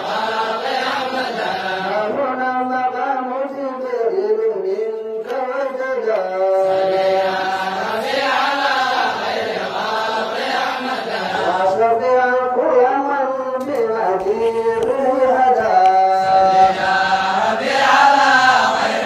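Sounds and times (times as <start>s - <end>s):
voices chanting a devotional ode: 0.0s - 19.0s.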